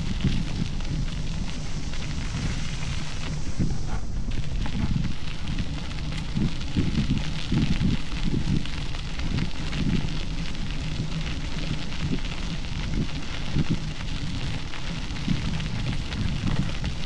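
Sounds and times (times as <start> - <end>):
bicycle tyres crunching on gravel: 0.0 - 17.0
wind buffeting microphone: 0.0 - 17.0.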